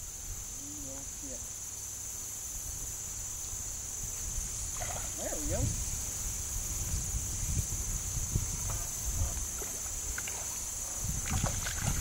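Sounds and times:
insects droning: 0:00.0 - 0:12.0
wind rumble on microphone: 0:03.9 - 0:12.0.

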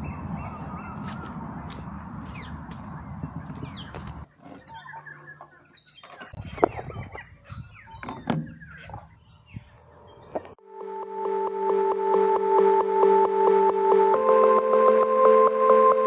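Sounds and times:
rushing wind-like noise: 0:00.0 - 0:04.3
birds calling and chirping: 0:00.0 - 0:10.6.

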